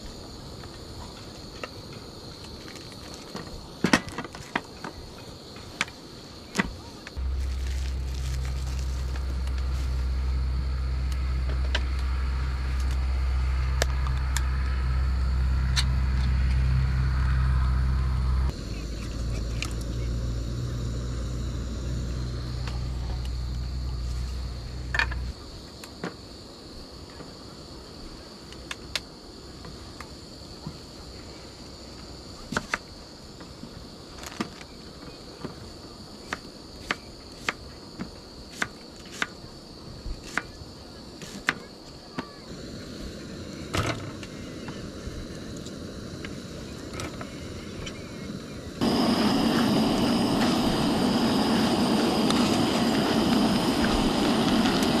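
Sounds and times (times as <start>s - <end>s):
insects chirping: 0.0s - 55.0s
low steady rumble: 7.2s - 25.3s.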